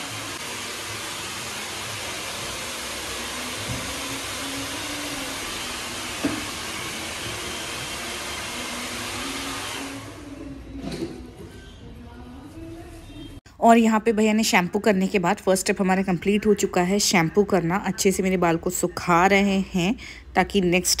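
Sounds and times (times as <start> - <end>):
hair dryer running: 0.0 - 10.6.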